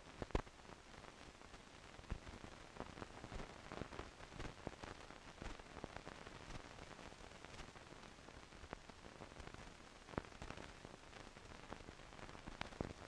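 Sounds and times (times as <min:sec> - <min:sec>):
film hiss with crackles and pops: 0:00.0 - 0:13.0.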